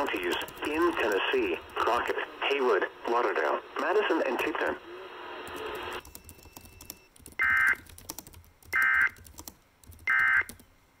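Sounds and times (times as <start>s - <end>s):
radio hiss: 0.0s - 6.0s.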